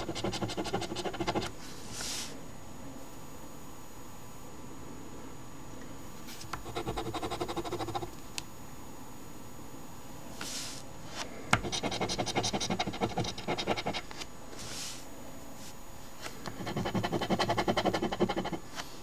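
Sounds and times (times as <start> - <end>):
coin scratching lottery ticket: 0.0 - 1.5, 11.6 - 14.1, 16.6 - 18.6.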